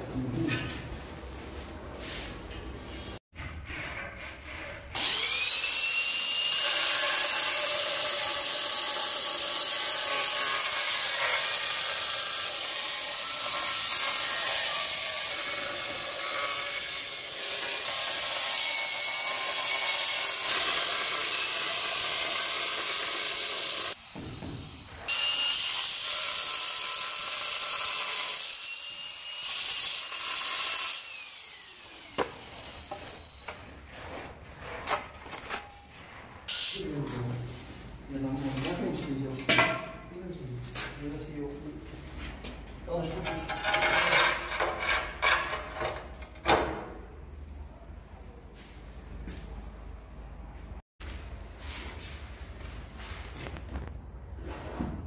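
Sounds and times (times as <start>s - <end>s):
angle grinder cutting tile: 4.9s - 24.1s, 25.0s - 33.5s, 43.2s - 46.1s.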